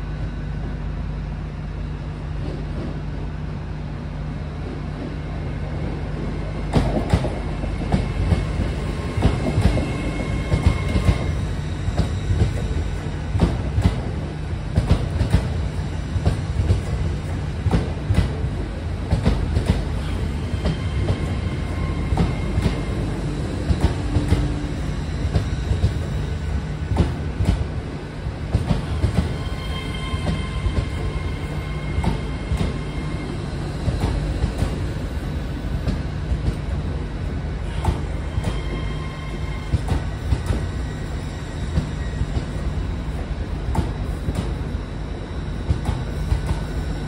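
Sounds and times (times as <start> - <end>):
train rumbling past: 0.0 - 47.0
high-pitched wheel squeals: 20.0 - 23.5, 28.9 - 33.9, 37.7 - 42.6.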